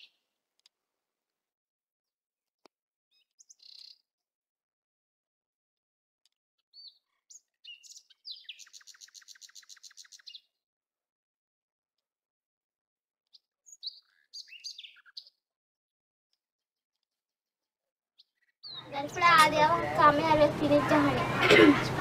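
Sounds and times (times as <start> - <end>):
small birds chirping: 0.0 - 0.2, 3.1 - 4.1, 6.6 - 10.6, 13.2 - 15.4, 18.2 - 22.0.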